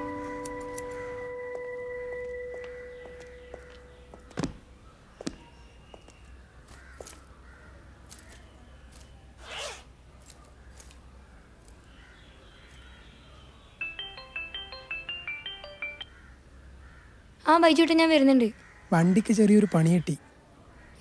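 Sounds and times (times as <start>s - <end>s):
short zip: 9.4s - 9.9s.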